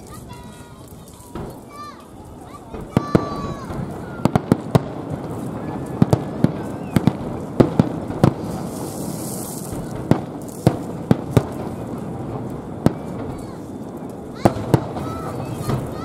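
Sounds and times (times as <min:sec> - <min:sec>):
fireworks bangs: 0:00.0 - 0:16.0
high firework hiss: 0:00.0 - 0:16.0
steady background noise: 0:00.0 - 0:16.0.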